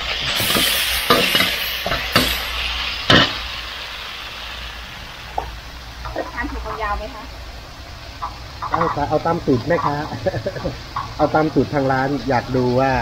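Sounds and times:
utensil clanking against wok: 0.0 - 3.4, 8.2 - 11.8
food sizzling in a wok: 0.0 - 13.0.

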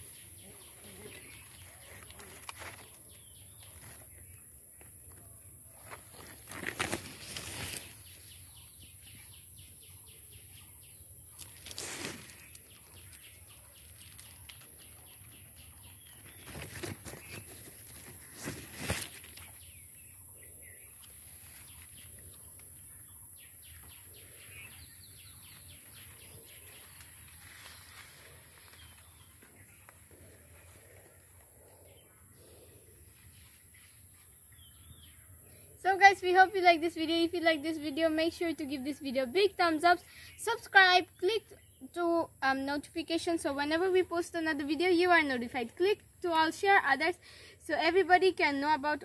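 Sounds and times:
birds chirping: 0.0 - 45.8
rustles and knocks through plants: 5.7 - 8.0, 11.4 - 12.8, 16.2 - 19.6.

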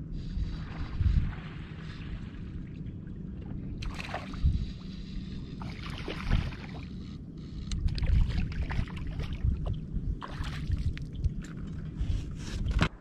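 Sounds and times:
water sloshing against boat: 0.0 - 13.0
wind buffeting microphone: 0.0 - 13.0.

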